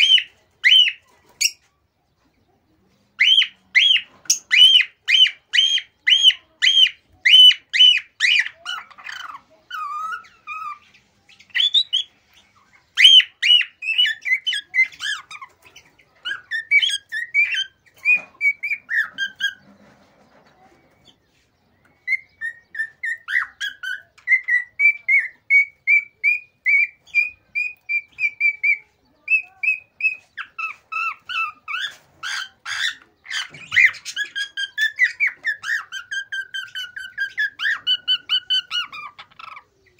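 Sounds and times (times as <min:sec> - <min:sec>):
cockatiel whistling and chirping: 0:03.2 - 0:09.0, 0:11.5 - 0:12.1, 0:12.9 - 0:15.7, 0:16.3 - 0:19.6, 0:21.8 - 0:39.6.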